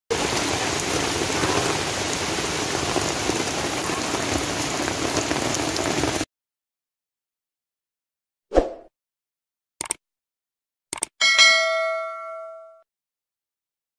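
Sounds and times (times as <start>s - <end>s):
heavy rain on gravel: 0.1s - 6.3s.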